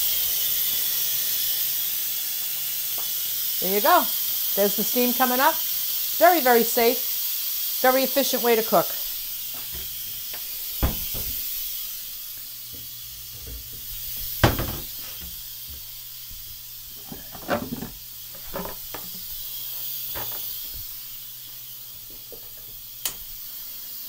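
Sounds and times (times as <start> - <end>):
pressure cooker steam hissing: 0.0 - 24.0
knocks and clatters: 12.8 - 15.4.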